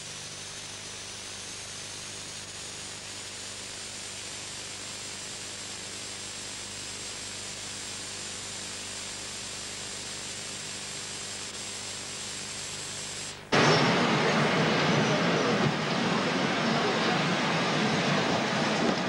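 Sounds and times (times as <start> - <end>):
steady hiss: 0.0 - 19.0
loud abrupt sound: 13.5 - 19.0.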